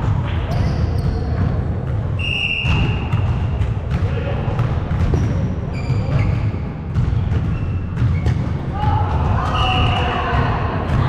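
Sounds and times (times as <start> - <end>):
volleyball thuds: 1.1 - 11.0
shoes squeaking on wooden floor: 5.0 - 8.5.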